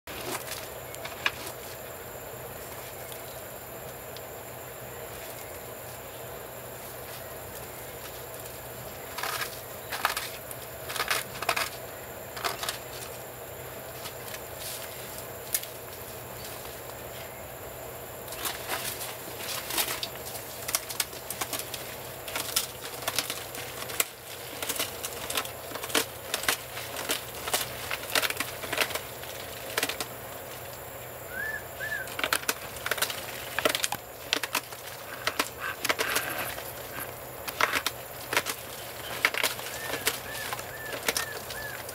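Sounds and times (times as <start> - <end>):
animal clawing at termite nest: 32.2 - 41.9.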